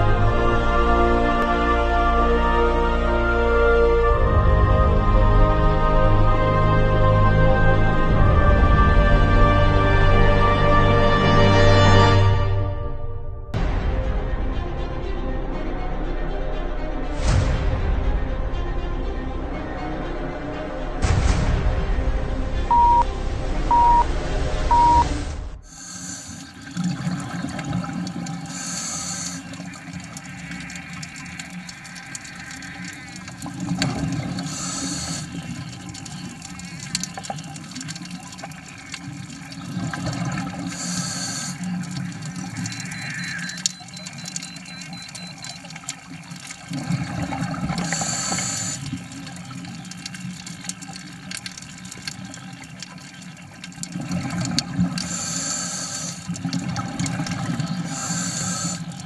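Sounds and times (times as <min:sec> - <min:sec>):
music: 0:00.0 - 0:26.2, 0:42.6 - 0:45.6
short beeps: 0:22.7 - 0:23.1, 0:23.7 - 0:24.1, 0:24.7 - 0:25.1, 0:42.8 - 0:45.6
diver breathing through regulator: 0:25.6 - 0:26.6, 0:28.5 - 0:29.7, 0:34.3 - 0:35.5, 0:40.6 - 0:41.8, 0:47.7 - 0:49.0, 0:55.0 - 0:56.4, 0:57.7 - 0:59.0
exhaled bubbles gushing: 0:25.7 - 0:59.0.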